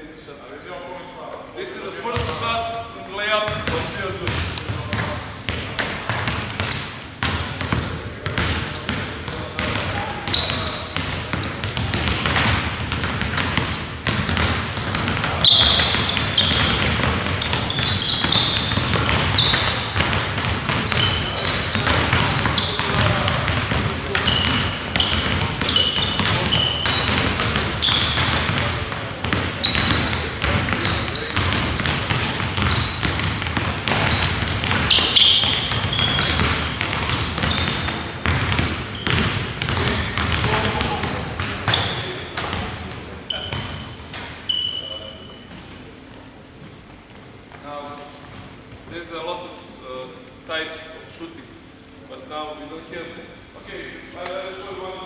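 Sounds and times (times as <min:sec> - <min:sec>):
basketballs bouncing on gym floor: 0:02.1 - 0:45.9
sneakers squeaking on court: 0:02.1 - 0:46.2.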